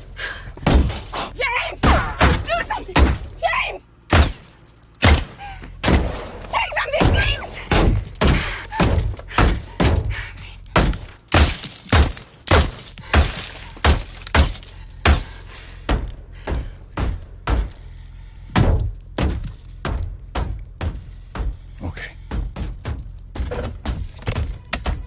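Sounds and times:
bullets striking car windows: 0:04.1 - 0:10.1, 0:10.7 - 0:17.9, 0:18.5 - 0:21.7.

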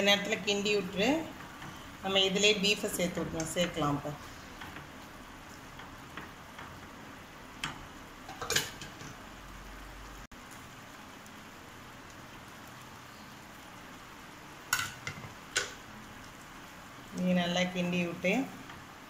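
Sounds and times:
vegetables sizzling in frying pan: 0:00.0 - 0:19.0
utensil clattering on pan: 0:07.6 - 0:09.2, 0:14.7 - 0:15.8.

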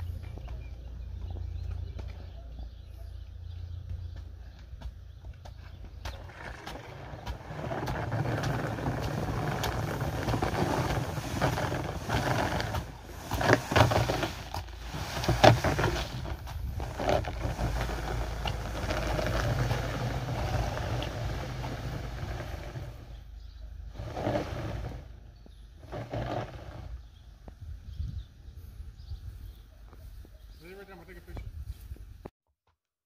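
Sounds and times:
barrel scraping across asphalt: 0:05.5 - 0:27.3.

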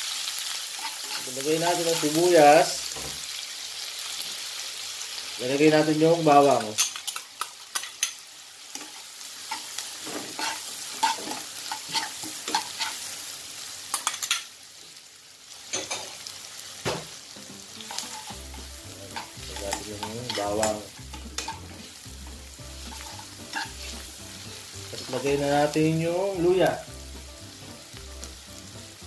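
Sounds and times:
onion and garlic sizzling in oil: 0:00.0 - 0:29.0
spoon scraping and tapping wok: 0:06.8 - 0:13.0, 0:17.8 - 0:25.1.

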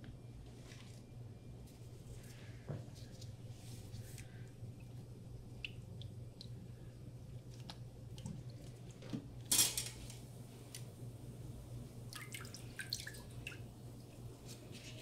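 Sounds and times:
steady low hum: 0:00.0 - 0:15.0
water splashing in a steel bowl: 0:12.1 - 0:13.7.

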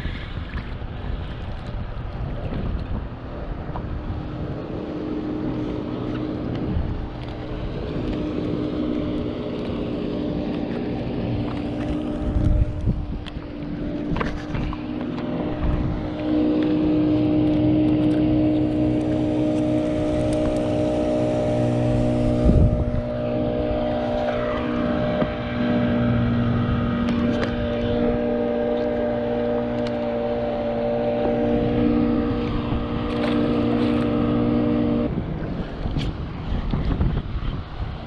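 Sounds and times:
boat engine drone underwater: 0:00.0 - 0:38.0
rushing water: 0:00.0 - 0:38.0
wind noise: 0:00.0 - 0:38.0.

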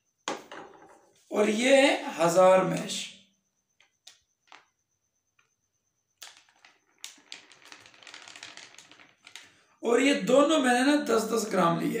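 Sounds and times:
powder crackling softly: 0:06.2 - 0:09.8.

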